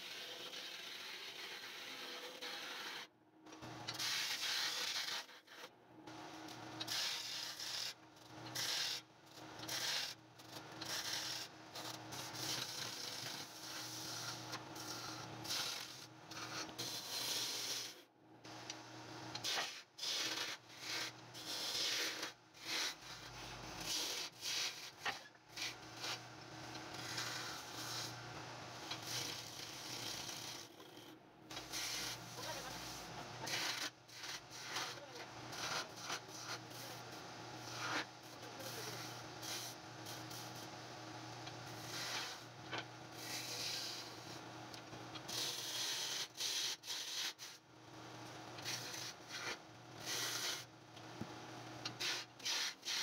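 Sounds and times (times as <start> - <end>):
turning tool scraping wood: 0.1 - 3.0, 19.4 - 26.2, 26.8 - 28.2, 28.9 - 37.0, 41.8 - 42.4, 48.6 - 50.7, 51.9 - 53.0.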